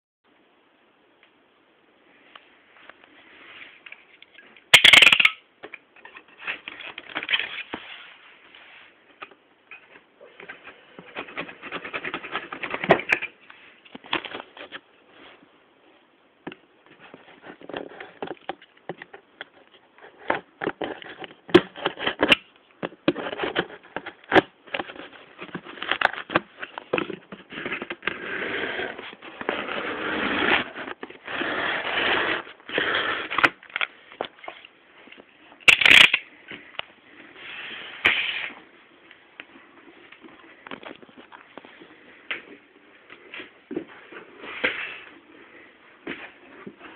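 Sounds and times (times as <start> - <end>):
cardboard box being cut open: 28.1 - 33.6.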